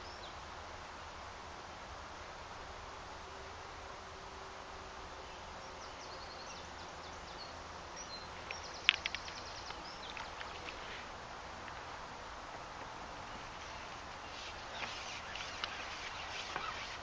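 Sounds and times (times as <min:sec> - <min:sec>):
outdoor background noise: 0:00.0 - 0:17.0
sharp clicks: 0:08.4 - 0:10.8.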